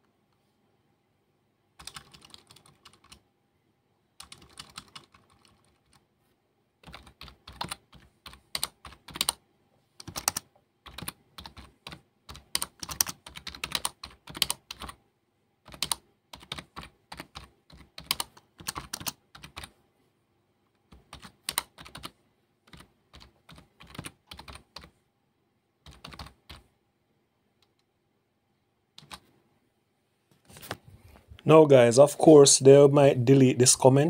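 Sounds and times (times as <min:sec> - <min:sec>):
typing on computer keyboard: 0:01.8 - 0:03.2, 0:04.2 - 0:06.0, 0:06.8 - 0:09.4, 0:10.0 - 0:15.0, 0:15.6 - 0:19.7, 0:20.9 - 0:22.1, 0:22.7 - 0:24.9, 0:25.8 - 0:26.7, 0:29.0 - 0:29.3.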